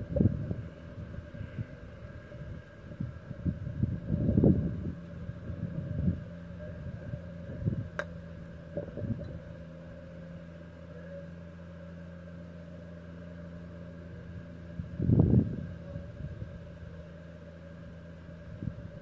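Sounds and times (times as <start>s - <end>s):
mechanical hum: 0.0s - 19.0s
golf club striking ball: 7.9s - 9.4s.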